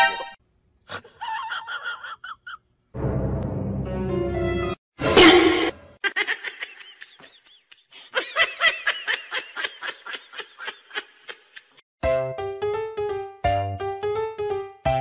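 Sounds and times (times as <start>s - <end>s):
high-pitched giggling laughter: 0.9s - 2.6s, 6.0s - 11.8s
keyboard music: 12.0s - 15.0s.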